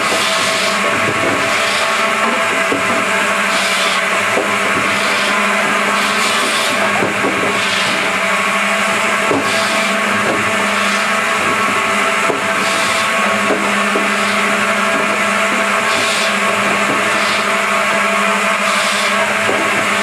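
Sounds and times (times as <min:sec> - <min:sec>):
firewood saw humming: 0:00.0 - 0:20.0
saw rasping through wood: 0:00.0 - 0:20.0.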